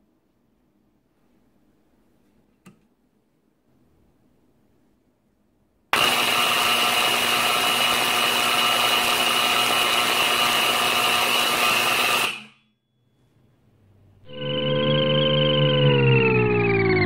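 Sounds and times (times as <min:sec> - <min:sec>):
alarm siren blaring: 0:14.2 - 0:17.0.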